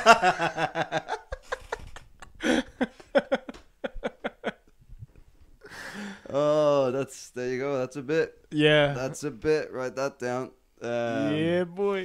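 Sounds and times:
men laughing: 0.0s - 4.7s.

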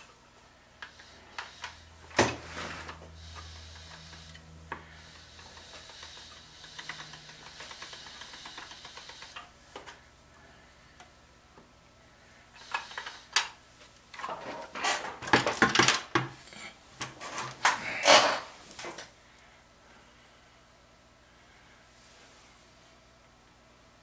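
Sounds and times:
pasta machine humming and rattling: 0.7s - 10.7s.

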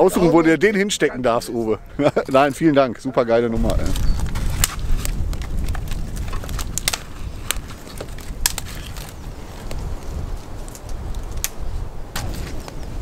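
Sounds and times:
wind buffeting microphone: 3.4s - 13.0s
sharp crackles and snaps: 3.6s - 13.0s.

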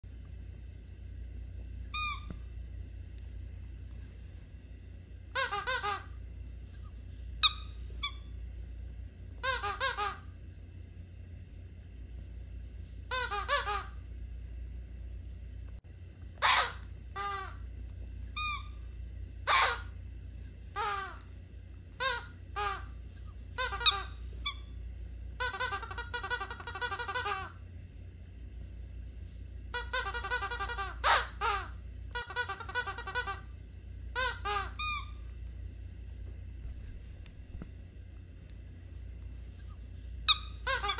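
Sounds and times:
low steady hum: 0.0s - 40.9s
squeaky dog toy squeaking: 2.0s - 2.4s, 5.4s - 6.1s, 7.4s - 8.3s, 9.4s - 10.3s, 13.1s - 14.0s, 16.4s - 17.6s, 18.4s - 18.8s, 19.5s - 20.0s, 22.0s - 22.9s, 23.6s - 24.7s, 25.4s - 27.5s, 29.7s - 33.5s, 34.2s - 35.3s, 40.3s - 40.9s.

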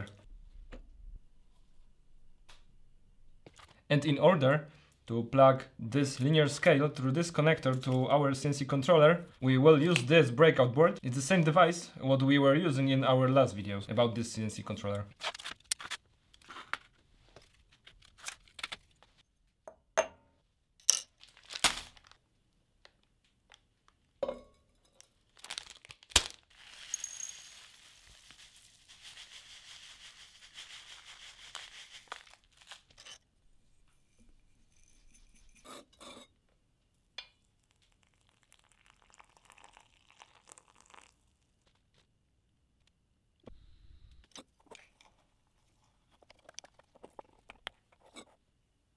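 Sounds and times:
cup and paper bag handled: 25.3s - 33.2s
dry leaves poured into cup: 25.4s - 33.0s, 38.0s - 41.1s.

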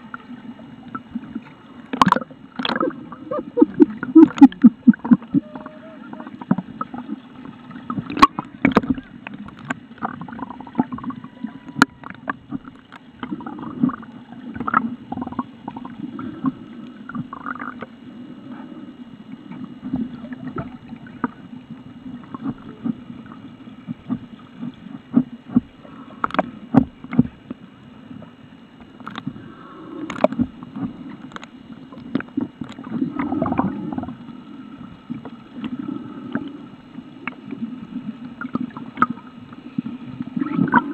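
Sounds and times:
muffled underwater wash: 0.0s - 40.9s
faint high tone: 5.3s - 6.4s
sharp clicks and knocks: 28.8s - 29.3s.

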